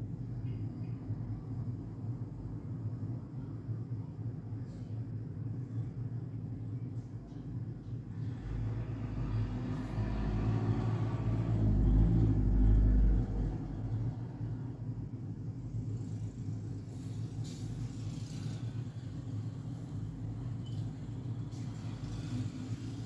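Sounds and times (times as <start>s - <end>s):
steady low hum: 0.0s - 23.0s
low rumble: 7.8s - 18.0s.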